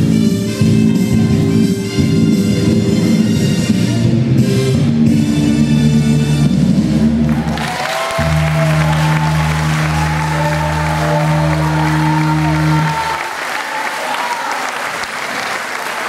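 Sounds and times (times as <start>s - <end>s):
recorded dance music: 5.2s - 13.2s
audience applause and cheering: 6.8s - 16.0s.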